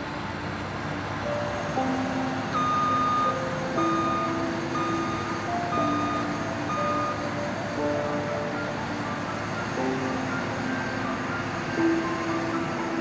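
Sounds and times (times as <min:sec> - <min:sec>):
background music with held notes: 0:00.0 - 0:13.0.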